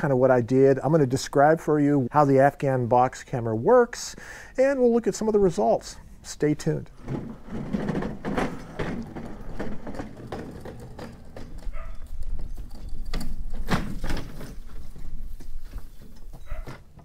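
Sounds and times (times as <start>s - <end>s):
hand cart rattling over paving: 6.8s - 17.0s
footsteps: 7.0s - 17.0s.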